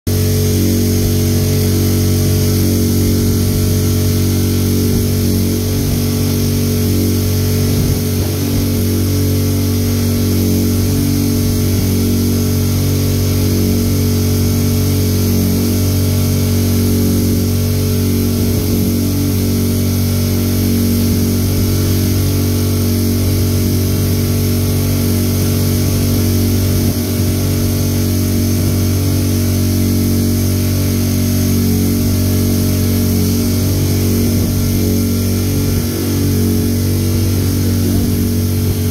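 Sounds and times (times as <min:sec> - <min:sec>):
wind buffeting microphone: 0:00.2 - 0:13.9, 0:33.4 - 0:38.9.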